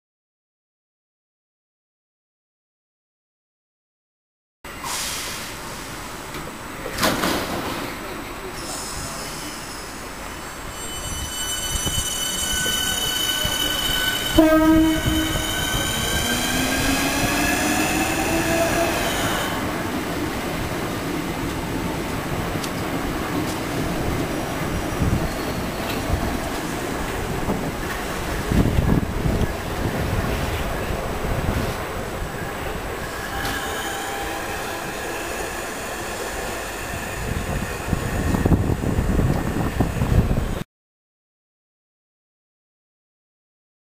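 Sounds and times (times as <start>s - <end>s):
train coaches rumbling on rails: 4.7s - 40.6s
electric train whine: 9.2s - 20.0s
wind rumble on microphone: 24.0s - 32.4s, 37.2s - 40.6s.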